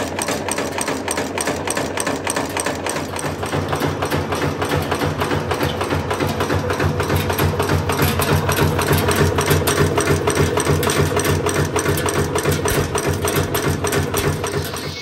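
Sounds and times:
nail making machine clatter: 0:00.0 - 0:15.0.

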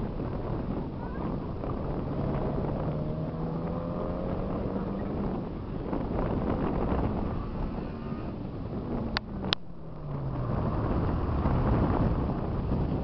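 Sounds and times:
car engine running under load: 0:00.0 - 0:13.0
wind buffeting microphone: 0:00.0 - 0:13.0.

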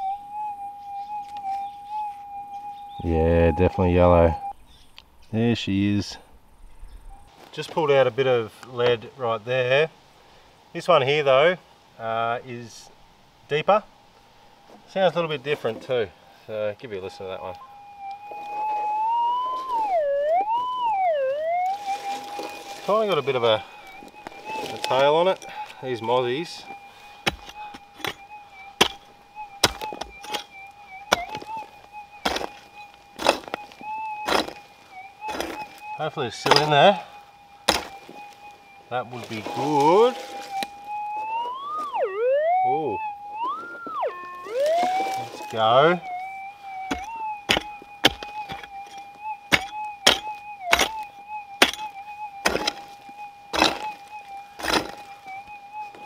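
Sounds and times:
metal detector tone: 0:17.5 - 0:56.0
digging tool striking ground: 0:27.2 - 0:34.6, 0:35.2 - 0:35.8, 0:36.4 - 0:37.0, 0:37.6 - 0:38.4, 0:46.8 - 0:55.2.

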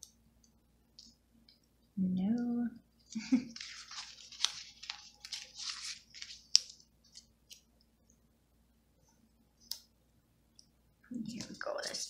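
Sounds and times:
paper scratching and rustling: 0:03.5 - 0:07.6.

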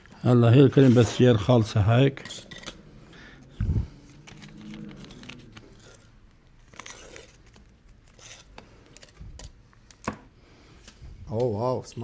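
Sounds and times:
utensils clicking and clinking: 0:00.6 - 0:02.9.

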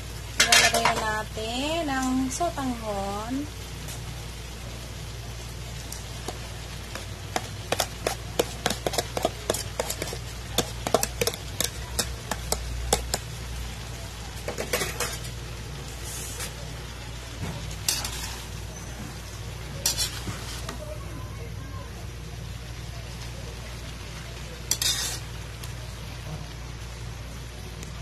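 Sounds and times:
sharp crackles and clicks: 0:03.4 - 0:20.9, 0:22.6 - 0:28.0
metal spatula scraping pan: 0:07.4 - 0:12.6, 0:14.5 - 0:15.3, 0:17.8 - 0:18.9, 0:19.8 - 0:20.8, 0:24.7 - 0:25.3.

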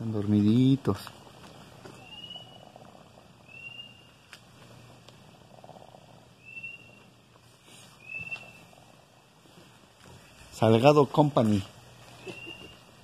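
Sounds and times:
chicken peeps: 0:12.2 - 0:12.9.

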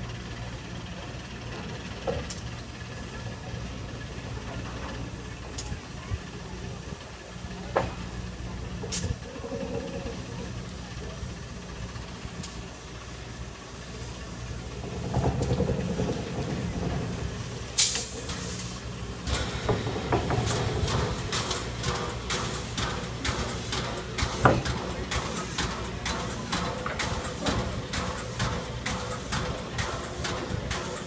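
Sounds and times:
steam locomotive rumble: 0:00.0 - 0:31.0
steam hissing burst: 0:15.9 - 0:31.0.

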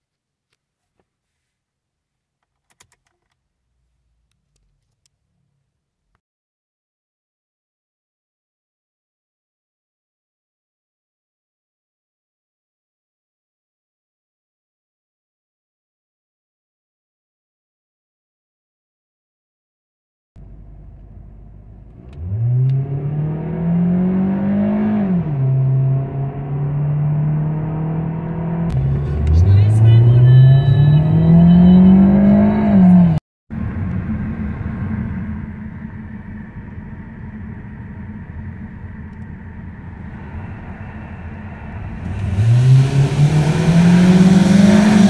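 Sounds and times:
car engine accelerating: 0:20.4 - 0:45.0.

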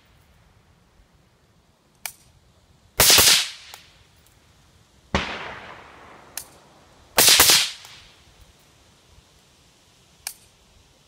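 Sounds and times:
suppressed rifle shots: 0:05.1 - 0:06.6, 0:07.2 - 0:08.0.

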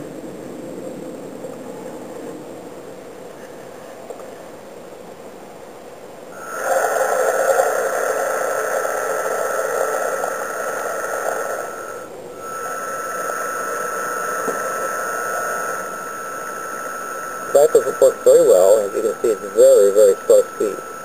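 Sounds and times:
electric motors whining: 0:06.4 - 0:21.0.

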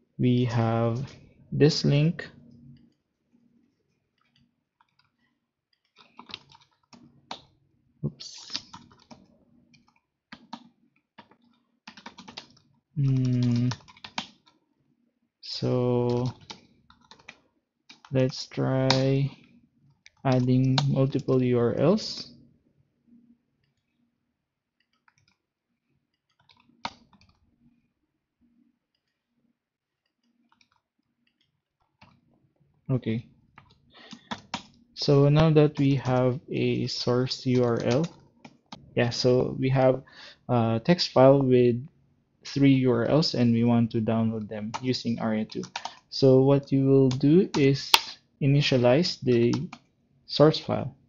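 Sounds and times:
keyboard typing clicks: 0:04.2 - 0:07.5, 0:08.3 - 0:14.6, 0:15.9 - 0:19.4, 0:20.1 - 0:21.8, 0:24.8 - 0:25.4, 0:26.2 - 0:27.4, 0:33.6 - 0:34.8, 0:37.4 - 0:38.9, 0:44.4 - 0:46.1
mouse and keyboard clicks: 0:24.8 - 0:25.4, 0:26.1 - 0:27.4, 0:30.0 - 0:32.2, 0:45.5 - 0:46.1.

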